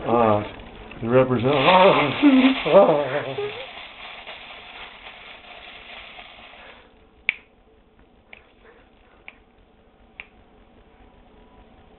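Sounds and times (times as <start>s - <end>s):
foil crinkling: 1.0s - 6.9s.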